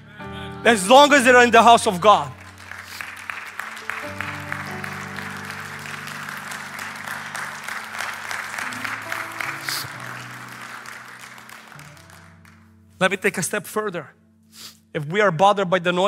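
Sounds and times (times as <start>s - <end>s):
soft music of held chords: 0.0s - 16.0s
congregation applauding: 0.9s - 12.8s.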